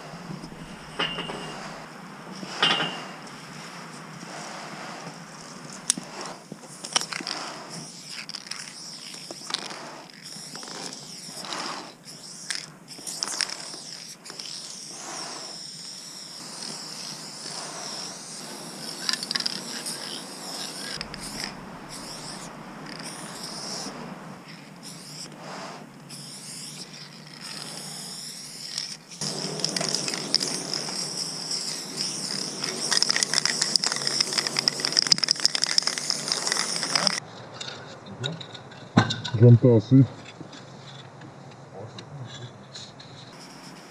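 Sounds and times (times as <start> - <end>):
spray paint can hissing: 5.8 - 37.2, 43.3 - 43.9.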